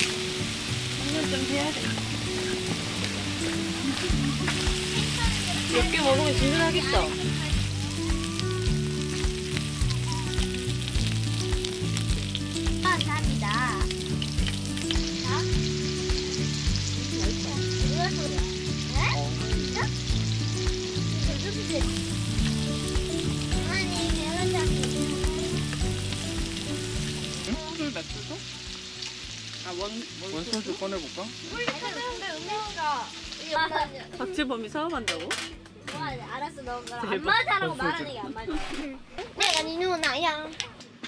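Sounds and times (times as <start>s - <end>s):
background music with bass and beat: 0.0s - 29.4s
food sizzling in a pan: 0.0s - 37.9s.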